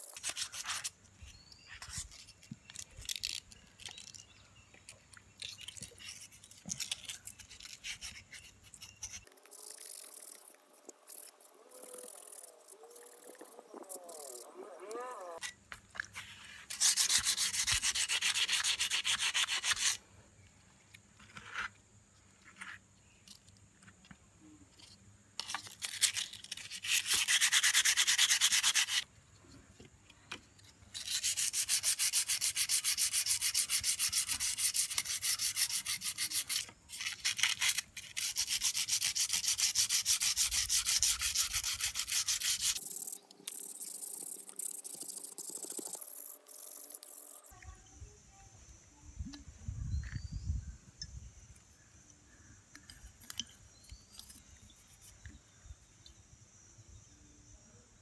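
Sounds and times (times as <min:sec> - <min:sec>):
sanding metal by hand: 0:16.7 - 0:20.0, 0:26.6 - 0:29.0, 0:31.0 - 0:42.8.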